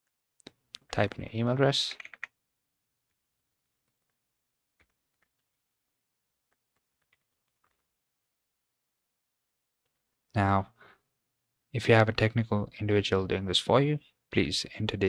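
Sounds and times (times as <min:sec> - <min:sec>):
keyboard typing: 0:02.0 - 0:02.4, 0:03.0 - 0:04.2, 0:04.8 - 0:05.6, 0:06.5 - 0:07.9.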